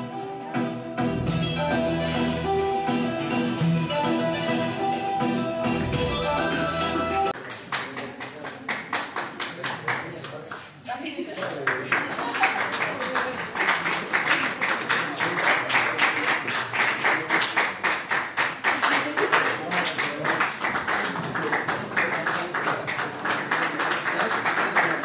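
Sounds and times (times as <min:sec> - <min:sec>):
audience clapping: 0:07.3 - 0:10.8, 0:11.4 - 0:25.0.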